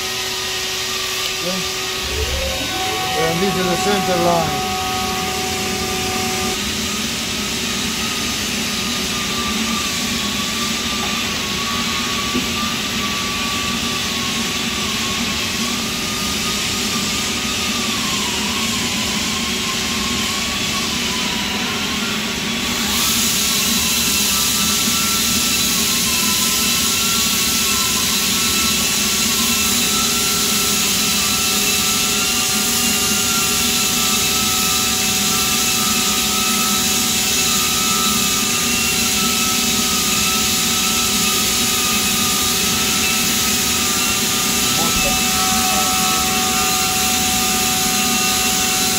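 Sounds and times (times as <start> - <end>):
shop machinery whining: 0.0 - 48.9
hiss: 22.8 - 45.8.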